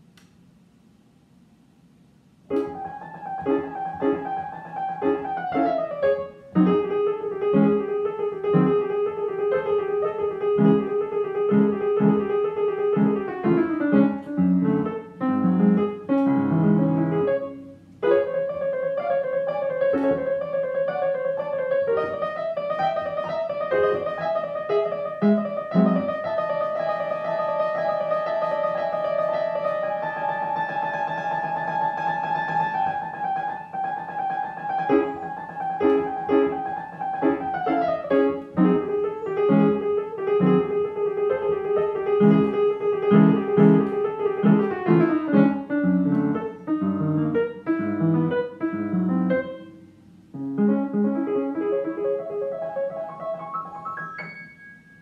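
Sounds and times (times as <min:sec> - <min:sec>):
upright piano playing: 0:02.4 - 0:55.0.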